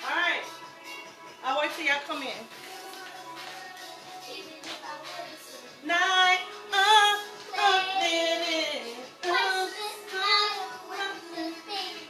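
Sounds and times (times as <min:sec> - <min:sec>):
song with high singing voice: 0:02.4 - 0:12.0.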